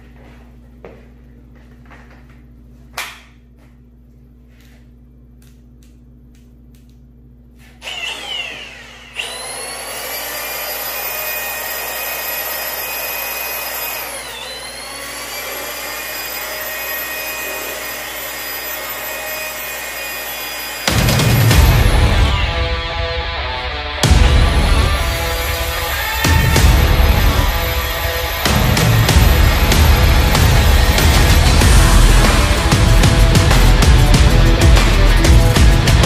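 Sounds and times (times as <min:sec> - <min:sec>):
power sander whining: 0:07.8 - 0:36.0.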